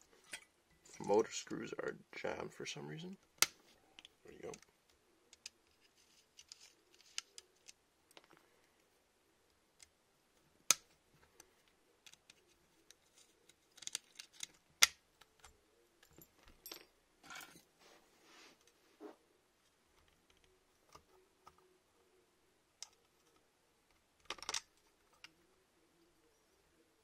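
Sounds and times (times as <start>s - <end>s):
small parts clicking and tapping: 3.3s - 8.9s, 10.7s - 17.6s, 22.8s - 25.4s.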